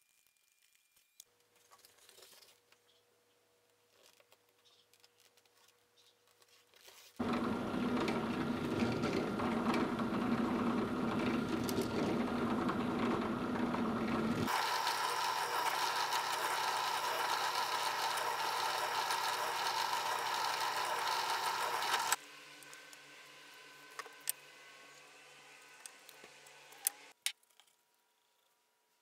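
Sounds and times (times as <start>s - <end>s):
drill press drilling leather: 7.2s - 22.2s.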